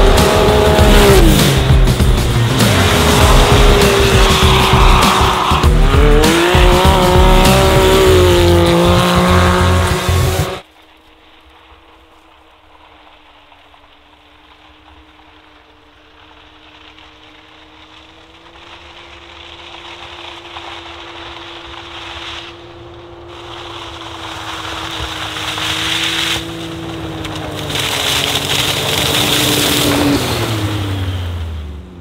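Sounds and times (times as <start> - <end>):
rushing noise: 0.0 - 13.4
vehicle engine drone: 0.0 - 32.0.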